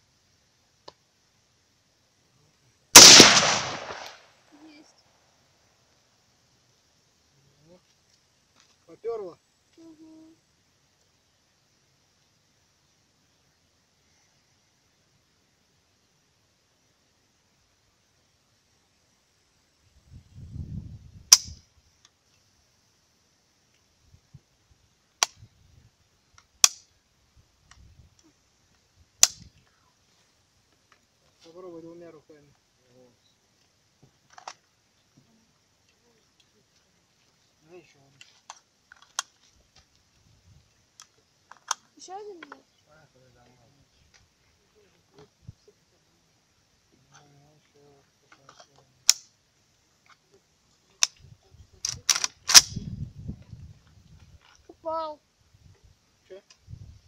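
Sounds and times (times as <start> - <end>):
gunshots: 3.0 - 4.2
rifle handling clicks: 38.5 - 39.3, 51.8 - 52.8.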